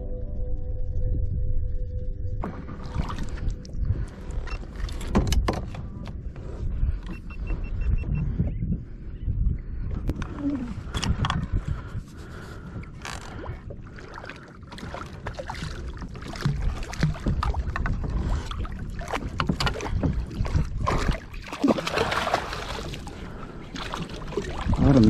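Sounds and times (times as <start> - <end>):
wind rumbling on microphone: 0.0 - 25.0
gear knocking on hull: 16.2 - 21.3
fish splashing in water: 20.5 - 24.8.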